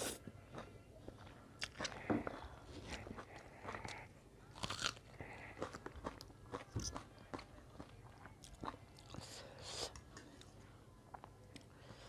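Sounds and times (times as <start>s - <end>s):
crunching raw onion: 4.6s - 7.1s.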